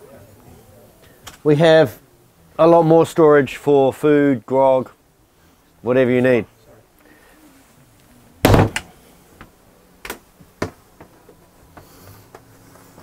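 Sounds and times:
cupboard doors knocking shut: 8.4s - 8.9s.

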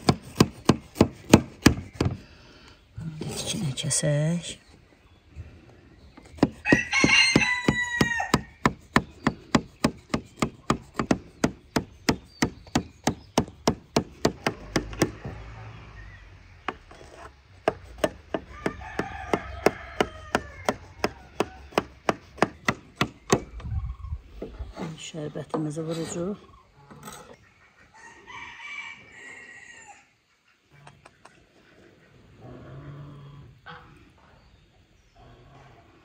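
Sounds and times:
rooster crowing: 6.6s - 8.6s, 18.4s - 21.7s, 28.0s - 30.2s.

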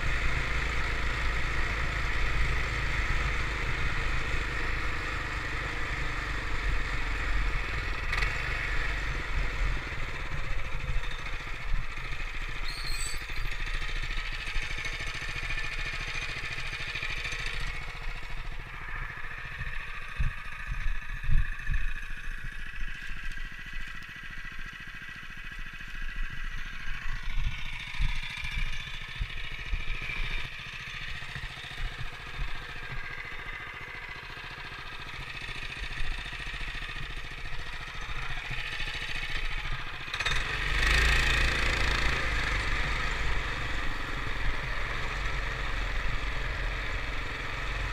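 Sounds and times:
small vehicle engine rumbling: 0.0s - 47.9s.

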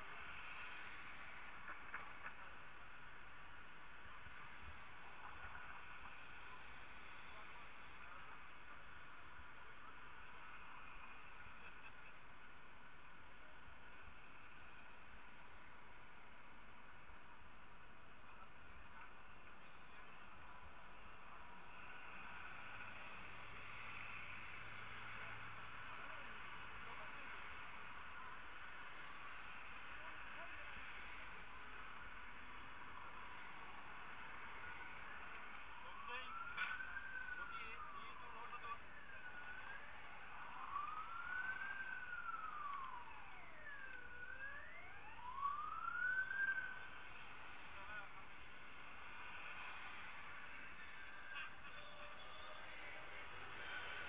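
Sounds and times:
street traffic noise: 0.0s - 54.0s
emergency siren wailing: 18.1s - 54.0s
bus engine hum: 37.2s - 46.4s.

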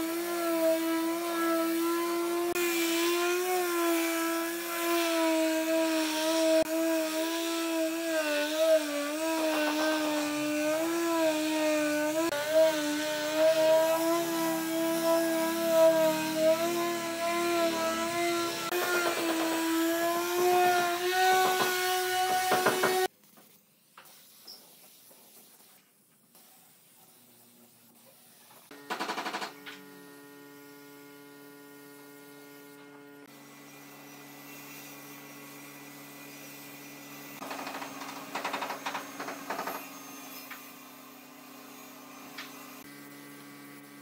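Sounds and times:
sander motor humming: 0.0s - 23.1s.

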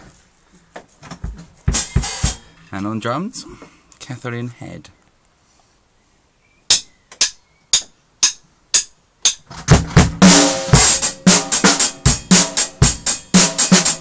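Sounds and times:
drum kit playing steady beat: 1.6s - 2.6s, 6.7s - 14.0s.

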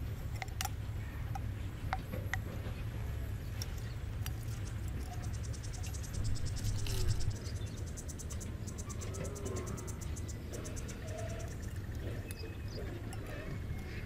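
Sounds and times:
low outdoor rumble: 0.0s - 14.0s
insects trilling: 4.3s - 14.0s.

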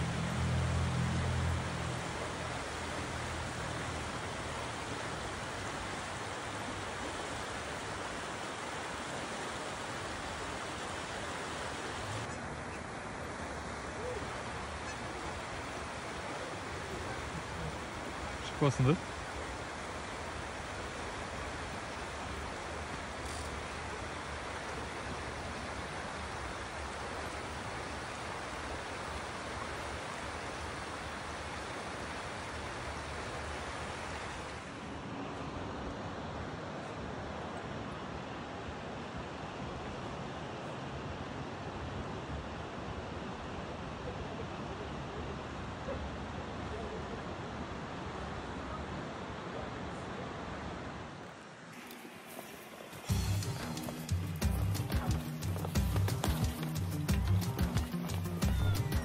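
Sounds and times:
river rushing over rocks: 0.0s - 59.0s.

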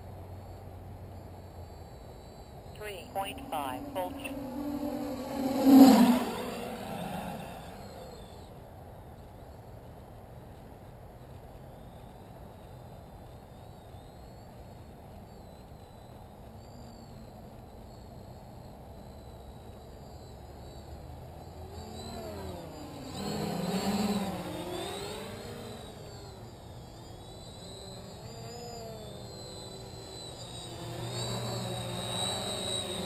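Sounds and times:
quadcopter motors buzzing: 3.0s - 8.5s, 19.5s - 33.0s.

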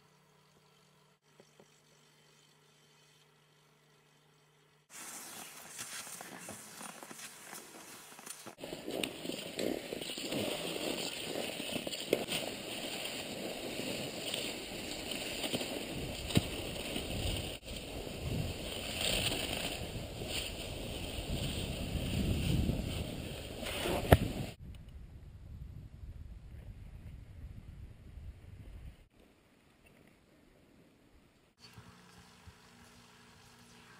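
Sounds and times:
skis swishing on snow tracks: 4.9s - 24.6s.

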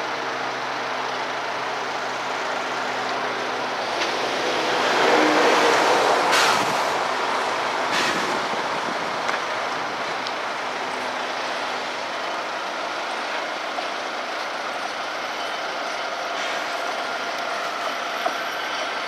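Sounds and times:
diesel locomotive rolling past: 0.0s - 19.0s.

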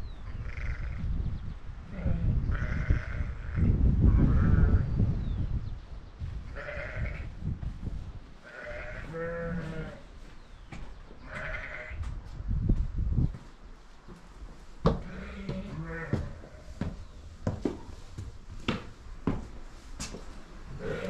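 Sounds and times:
sheep bleating: 2.0s - 4.8s, 6.6s - 7.3s, 8.4s - 10.0s, 11.2s - 12.0s, 15.0s - 16.4s, 20.8s - 21.0s.

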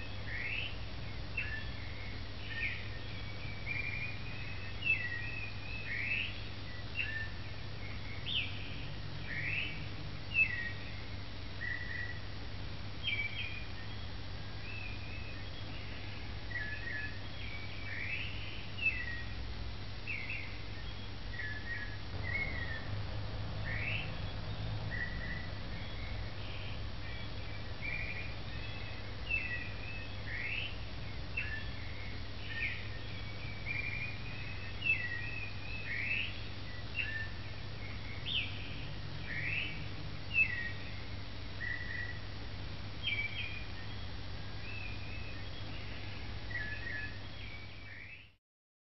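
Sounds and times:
birds chirping and singing: 0.0s - 12.4s, 13.0s - 19.4s, 20.1s - 42.4s, 43.0s - 48.4s
steady low hum: 0.0s - 47.9s.

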